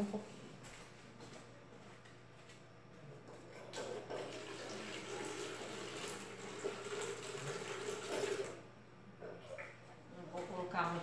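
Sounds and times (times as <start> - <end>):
water running and splashing: 4.2 - 8.6.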